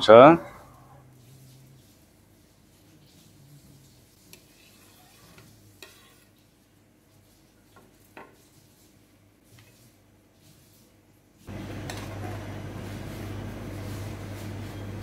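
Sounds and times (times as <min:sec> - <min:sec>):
pot boiling hard: 0:11.4 - 0:15.0.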